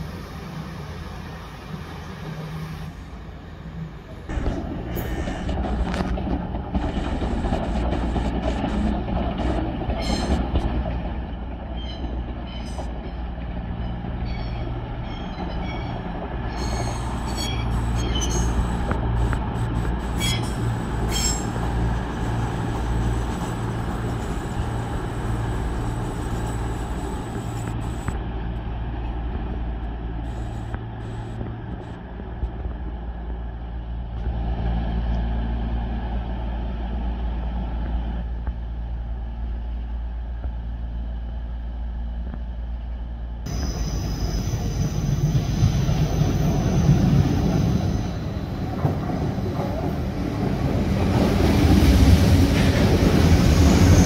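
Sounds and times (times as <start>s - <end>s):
train diesel engine hum: 0.0s - 54.0s
brake and wheel squeals: 10.0s - 10.5s, 11.7s - 13.2s, 13.8s - 18.8s, 20.0s - 21.7s, 43.5s - 48.7s.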